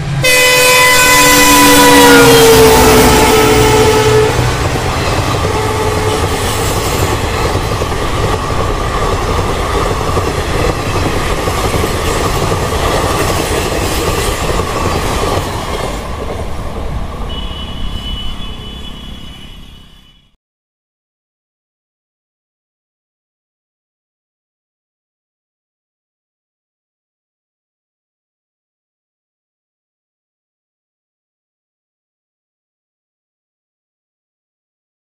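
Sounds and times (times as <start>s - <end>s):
train wheels rumbling on rails: 0.0s - 19.2s.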